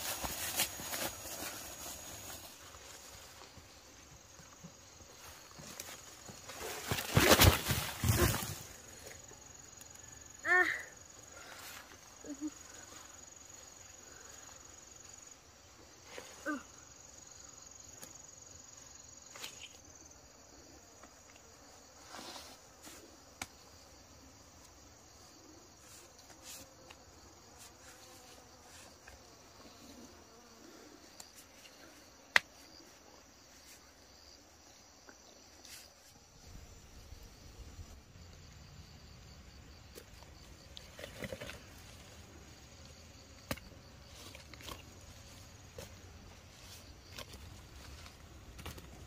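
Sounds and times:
insects chirring: 0.0 - 49.0.

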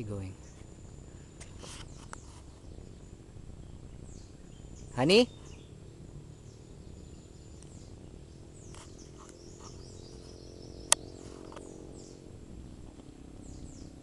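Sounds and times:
faint low hum: 0.0 - 14.0
high thin bird calls: 6.4 - 12.3.

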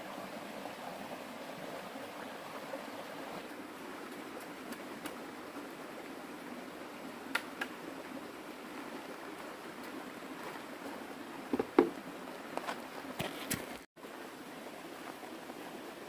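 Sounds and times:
stream running over rocks: 0.0 - 16.0
footsteps on stony ground: 9.4 - 13.9.

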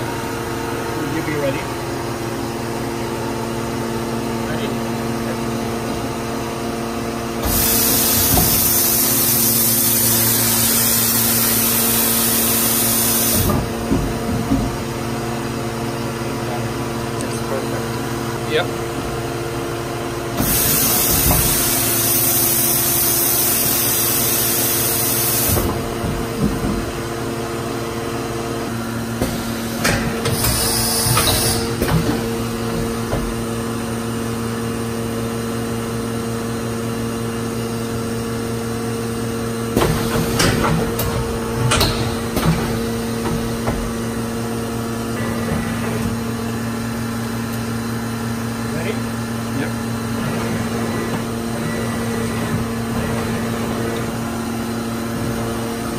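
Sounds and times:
machine humming: 0.0 - 55.9
compressed air hissing: 7.4 - 13.6, 20.4 - 25.8, 29.2 - 31.9.

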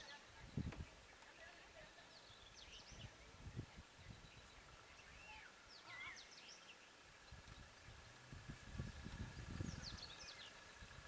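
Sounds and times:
bird chirps: 2.1 - 8.2, 8.8 - 11.0.

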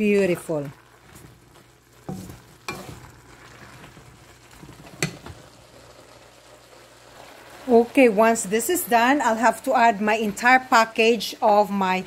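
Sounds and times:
vegetables sizzling in pan: 0.0 - 12.0
spatula scraping and knocking pan: 1.0 - 5.5.

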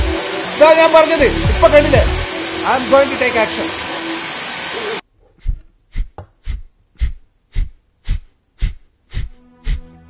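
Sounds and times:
heartbeat thumps: 5.4 - 9.9.

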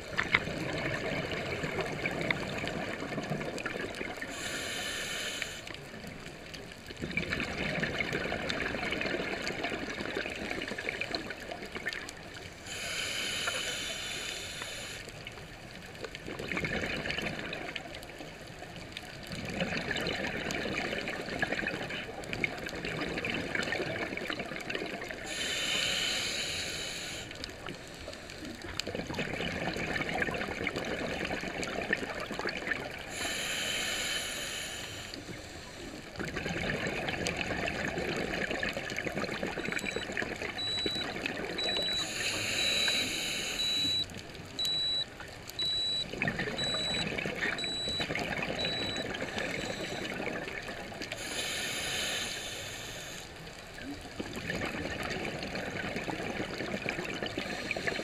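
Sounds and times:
exhaled bubbles rushing: 0.0 - 4.2, 7.0 - 12.0, 16.2 - 17.8, 19.3 - 25.2, 28.9 - 33.0, 36.2 - 42.0, 45.7 - 51.1, 54.2 - 58.0
hissing regulator inhalations: 4.3 - 5.8, 12.6 - 15.2, 25.3 - 28.2, 33.1 - 35.8, 40.6 - 45.0, 47.6 - 50.2, 51.1 - 53.4.

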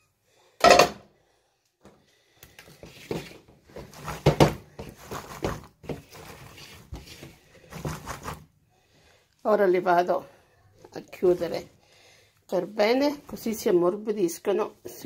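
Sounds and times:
cloth rustling: 2.6 - 8.5.

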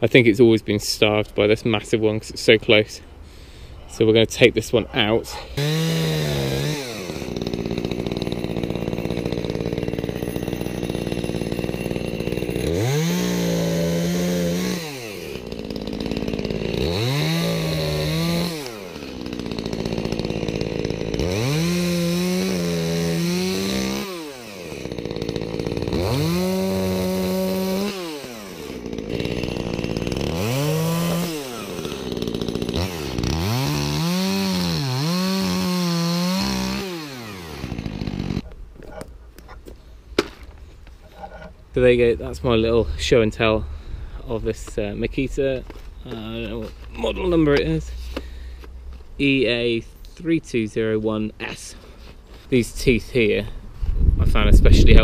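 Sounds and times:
chainsaw revving and cutting wood: 5.3 - 39.1, 44.2 - 49.8.

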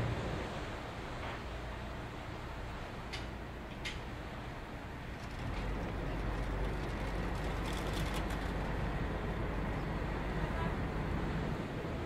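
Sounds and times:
boat engine idling: 4.8 - 11.7.

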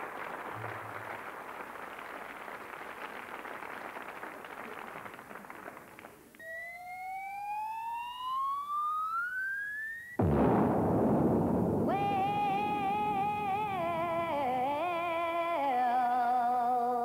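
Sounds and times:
audience applauding: 0.0 - 6.6
rising whistling tone: 6.4 - 10.2.

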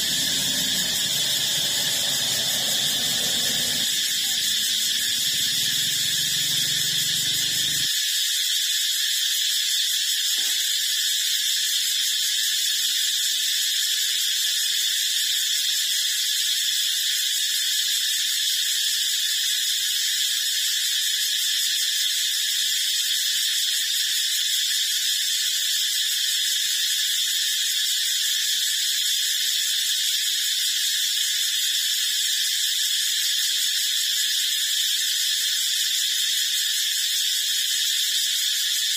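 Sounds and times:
high-pitched hiss with whine: 0.0 - 7.9.

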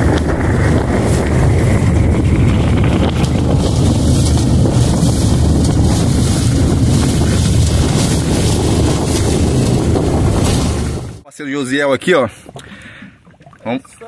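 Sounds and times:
boat motor running: 0.0 - 11.2
wind buffeting microphone: 0.0 - 11.2.

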